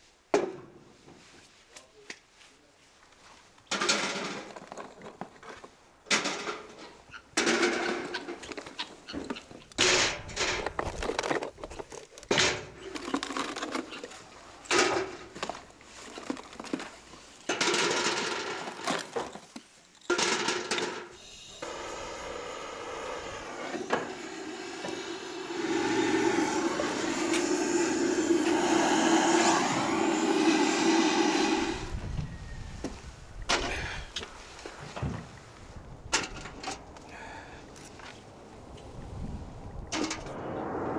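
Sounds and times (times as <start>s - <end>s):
blowtorch flame hissing: 21.2s - 32.1s.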